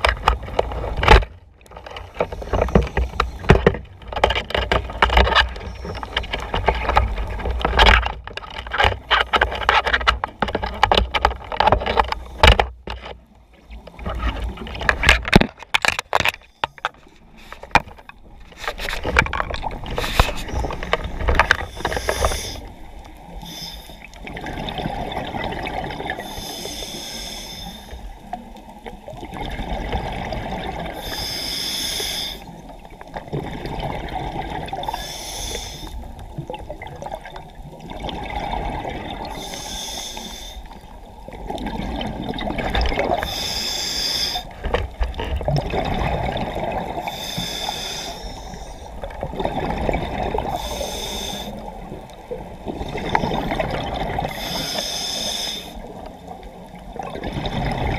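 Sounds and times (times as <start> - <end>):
regulator inhalation hiss: 21.7 - 22.6, 23.4 - 24.0, 26.2 - 28.0, 31.0 - 32.5, 34.9 - 36.0, 39.4 - 40.7, 43.2 - 44.5, 47.1 - 48.9, 50.6 - 51.6, 54.3 - 55.8
rumbling exhaled bubbles: 24.2 - 26.3, 28.3 - 31.0, 33.0 - 35.0, 36.0 - 39.4, 40.8 - 43.3, 44.5 - 47.1, 48.9 - 50.8, 51.6 - 54.5, 55.8 - 57.9.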